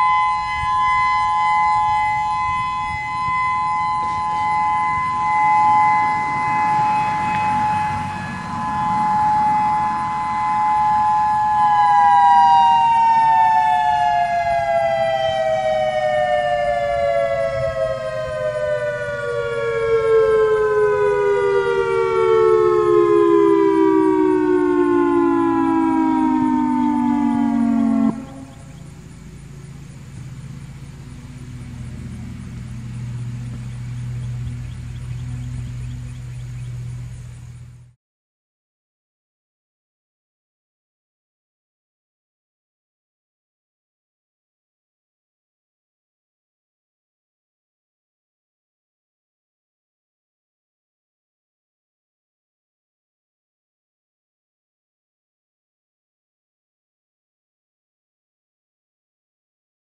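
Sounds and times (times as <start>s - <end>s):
two-tone warning siren: 0.0s - 37.9s.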